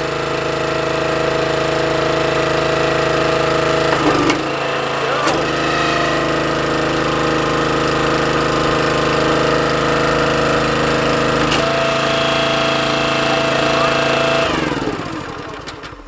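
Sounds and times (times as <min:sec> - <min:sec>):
small gas engine running: 0:00.0 - 0:16.0
steady higher whine: 0:03.0 - 0:10.3.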